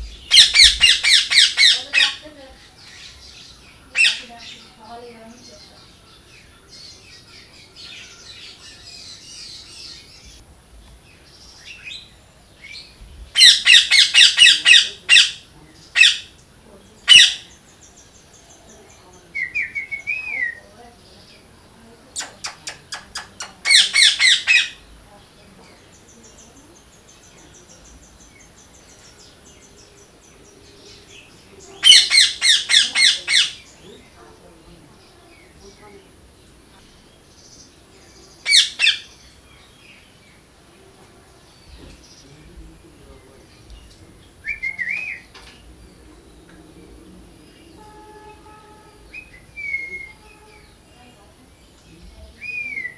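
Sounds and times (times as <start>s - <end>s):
parakeet shrieking: 0.3s - 2.2s, 13.4s - 15.4s, 23.7s - 24.8s, 31.8s - 33.7s, 38.5s - 39.1s
faint high twittering: 11.0s - 52.9s.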